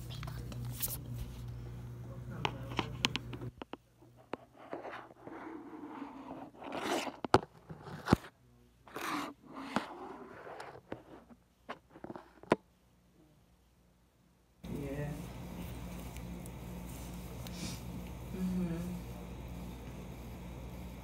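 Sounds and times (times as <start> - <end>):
phone rubbing on microphone: 4.1 - 12.5.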